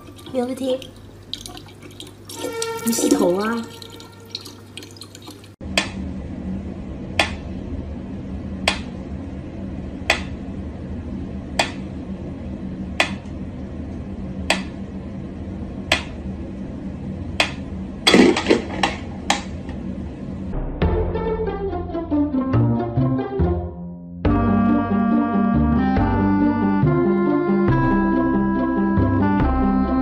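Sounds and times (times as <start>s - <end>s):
low steady hum: 0.0s - 20.7s.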